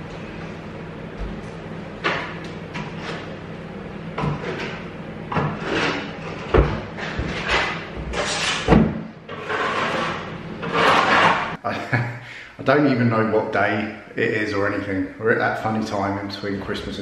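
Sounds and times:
trowel scraping wet plaster: 0:05.5 - 0:11.6.

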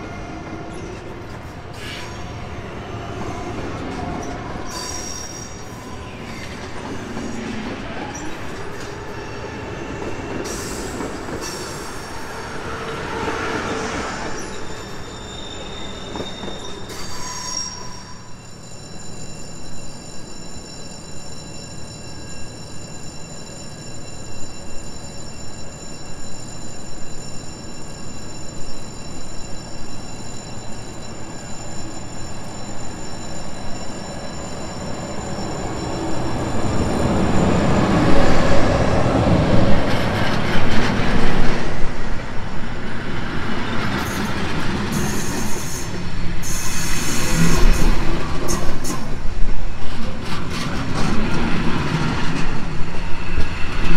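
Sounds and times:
train passing close by: 0:00.0 - 0:53.9
train wheel squeal: 0:00.0 - 0:53.9.

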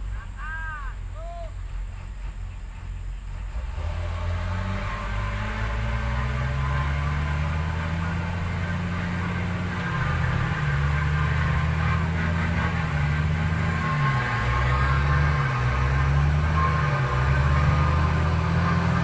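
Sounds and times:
truck diesel engine labouring: 0:00.0 - 0:19.0.

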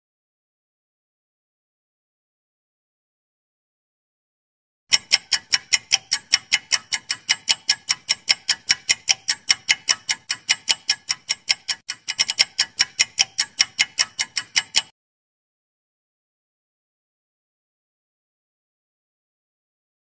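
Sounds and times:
countdown timer ticking: 0:04.9 - 0:14.9.

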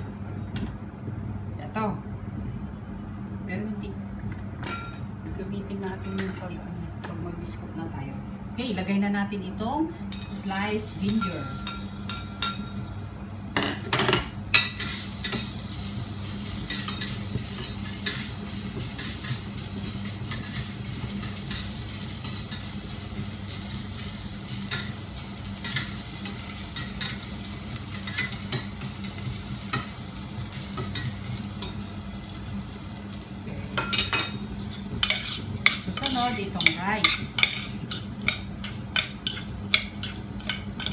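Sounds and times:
ginger sizzling in hot oil: 0:10.8 - 0:13.6, 0:14.4 - 0:40.9
utensil scraping against pan: 0:34.6 - 0:40.9.

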